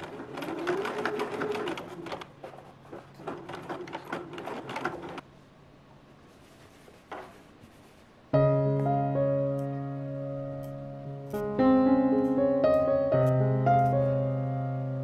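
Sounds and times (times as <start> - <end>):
sewing machine stitching: 0.0 - 5.2.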